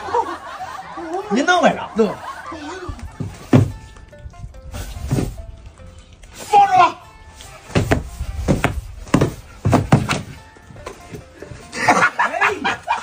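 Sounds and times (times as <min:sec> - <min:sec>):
background music: 0:00.0 - 0:13.0
dull thuds: 0:02.9 - 0:05.5, 0:07.6 - 0:11.6.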